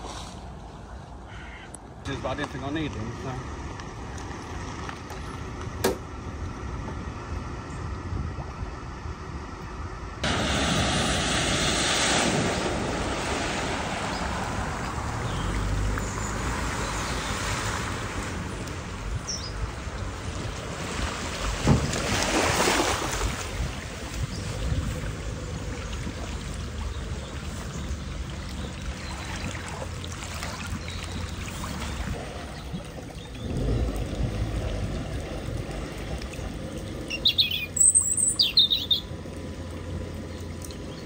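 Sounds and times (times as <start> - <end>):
wind buffeting microphone: 6.4 - 16.0, 21.4 - 29.6
floodwater splashing and rushing: 10.2 - 41.0.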